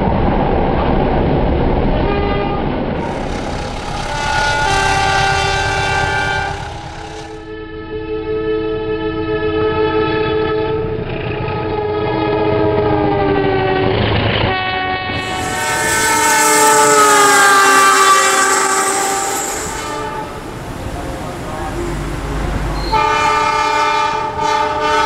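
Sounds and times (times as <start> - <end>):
locomotive air horn chord: 2.1 - 25.0
train wheels clattering on rails: 15.2 - 25.0.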